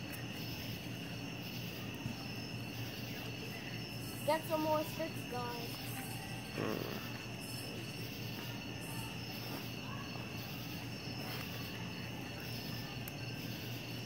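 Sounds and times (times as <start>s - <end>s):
crickets and insects trilling: 0.0s - 14.0s.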